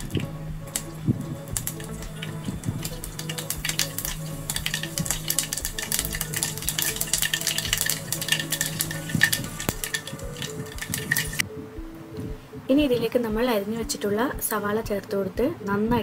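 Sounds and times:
seeds popping in hot oil: 0.0 - 11.4.

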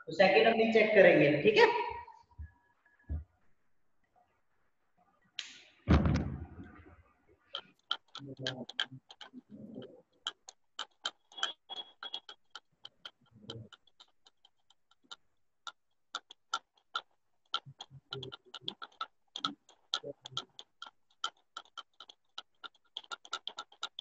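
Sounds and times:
rapid light clicking: 7.4 - 24.0.

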